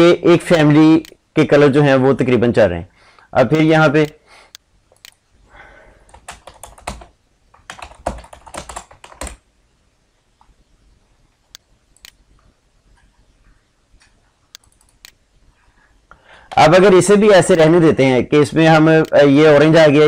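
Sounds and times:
typing on computer keyboard: 6.1 - 9.4, 14.5 - 15.2.

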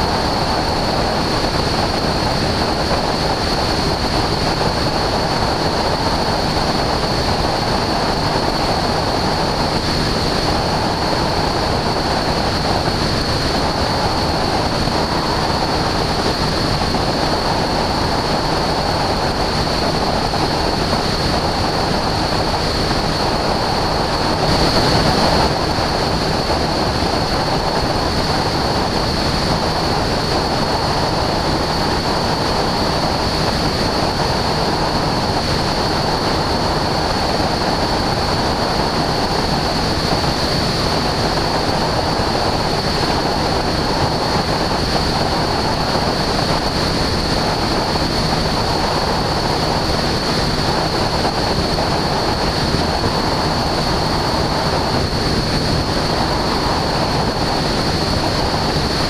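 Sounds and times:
aircraft engine and airflow rush: 0.0 - 59.0.

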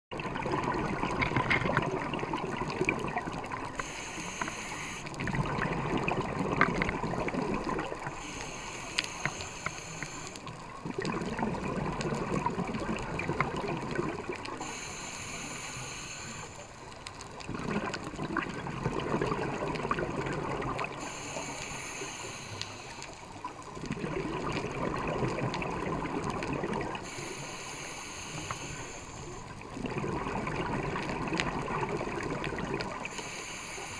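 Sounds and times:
exhaled air bubbling: 0.1 - 33.9
hissing regulator inhales: 3.7 - 5.2, 8.0 - 10.5, 14.6 - 16.8, 21.0 - 23.3, 27.0 - 29.5, 33.0 - 33.9.

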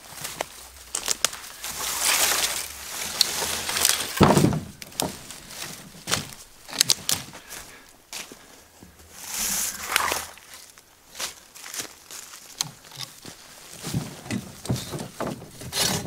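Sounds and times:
footsteps through dry brush: 0.0 - 14.7
twigs snapping: 0.3 - 4.2, 4.8 - 7.3
pole dragged through brush: 1.4 - 6.4, 8.8 - 11.4.

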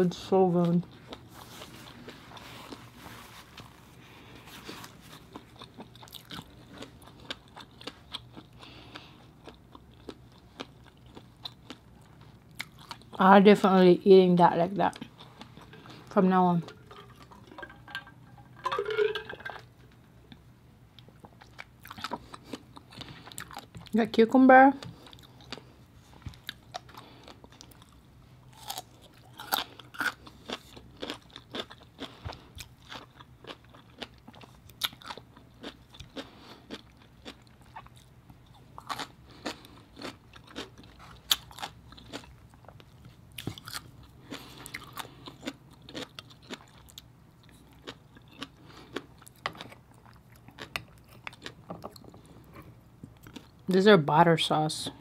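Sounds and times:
cucumber crunching while chewed: 4.4 - 13.2, 21.0 - 24.0, 24.8 - 53.7.

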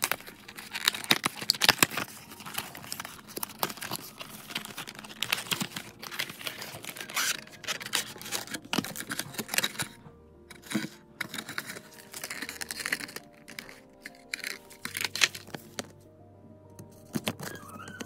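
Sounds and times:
packaging crinkling: 0.0 - 16.0, 16.9 - 18.0
plastic clicks: 0.0 - 16.0.

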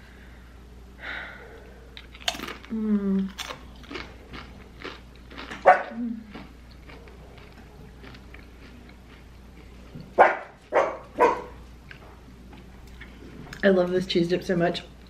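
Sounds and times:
dog barking: 5.6 - 6.0, 10.2 - 11.6.

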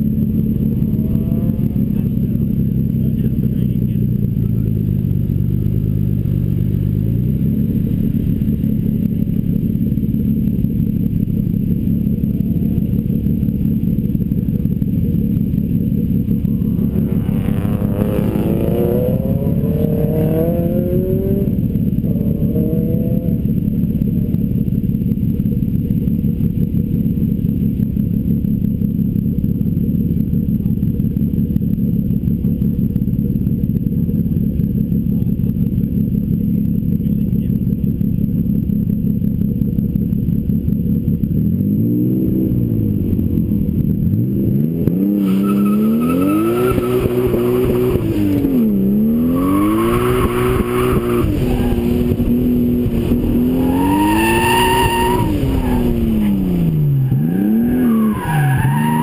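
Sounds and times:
engine notes rising in pitch: 0.0 - 2.7, 15.3 - 23.5, 44.6 - 59.0
car engine idling: 0.0 - 59.0.

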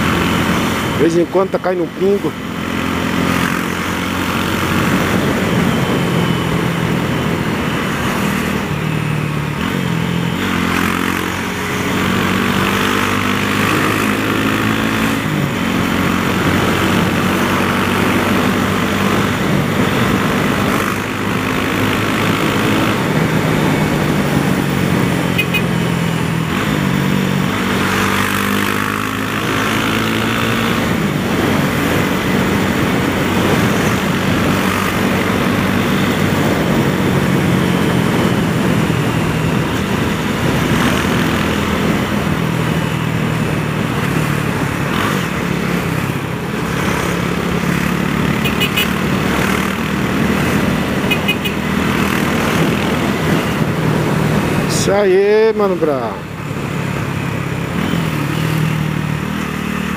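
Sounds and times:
motorcycle engine accelerating: 0.0 - 59.9
wind noise: 3.0 - 10.6, 11.2 - 47.7.

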